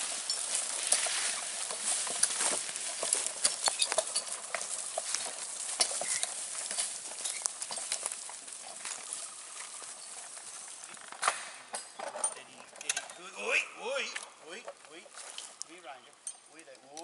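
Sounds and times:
hoof falls in grass: 0.0 - 11.7
gear clicks and clinks: 0.0 - 17.0
grass rustling: 0.0 - 17.0.

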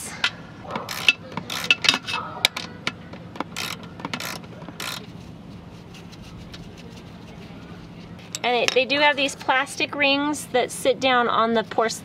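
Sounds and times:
socket ratchet clicking: 0.9 - 2.7, 3.4 - 5.0.

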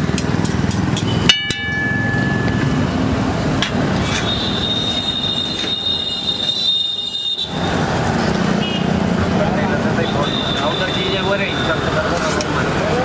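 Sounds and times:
metal spatula clanging on griddle: 0.5 - 2.8.

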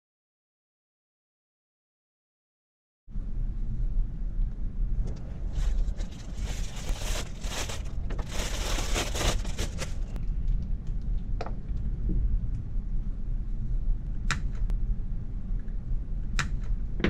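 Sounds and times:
steady low hum: 3.1 - 17.0
plastic bag crinkling: 5.4 - 10.2.

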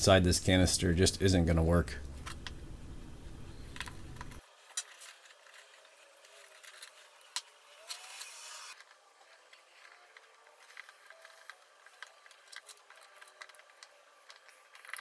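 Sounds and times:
low hum: 0.0 - 4.4.

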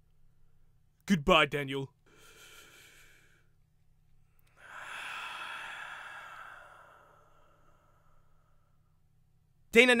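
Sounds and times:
long breathy inhale: 4.5 - 9.0.

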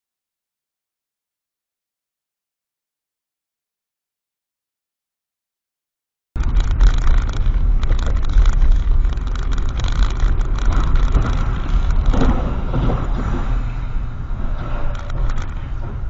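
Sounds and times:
car cabin noise on wet road: 6.4 - 16.0.

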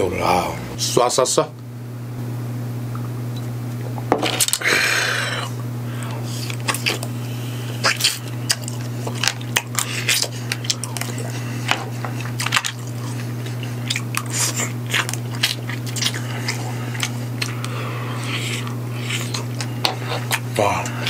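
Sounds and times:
steady low hum: 0.0 - 21.0
person sucking and chewing: 4.4 - 21.0.

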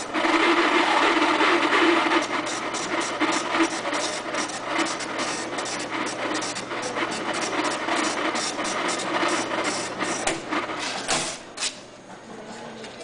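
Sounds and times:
man imitating coffee grinder: 0.0 - 10.3.

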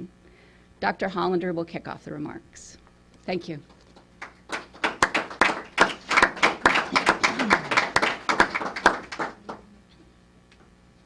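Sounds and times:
audience applauding: 3.9 - 9.7.

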